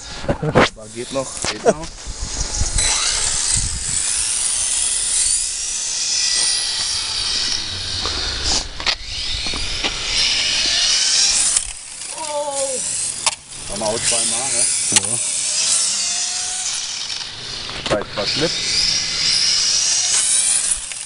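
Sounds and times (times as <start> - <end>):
wind rumble on microphone: 0.0 - 5.8
rc car motor whine: 0.8 - 21.0.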